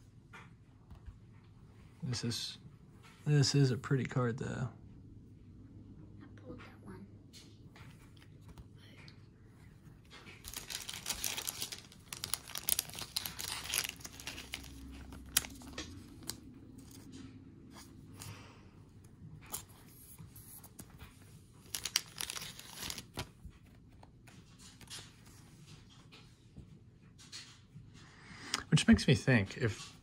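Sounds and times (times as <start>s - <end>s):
plastic sleeves crinkling: 10.1s - 17.1s, 19.5s - 23.7s.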